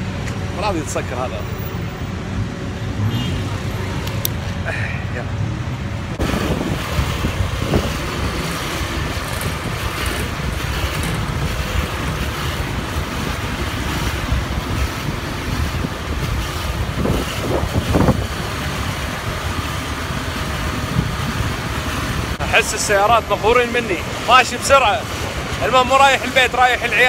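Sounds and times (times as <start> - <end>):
surrounding traffic: 0.0 - 27.0
wind on microphone: 6.0 - 22.5
scooter engine running: 6.2 - 22.4.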